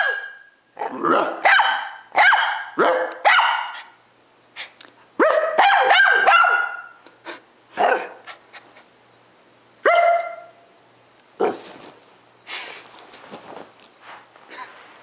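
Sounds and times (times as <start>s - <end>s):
small dog barking: 0.0s - 0.4s, 1.2s - 4.0s, 5.2s - 7.0s, 7.8s - 8.2s, 9.8s - 10.6s, 11.4s - 11.7s.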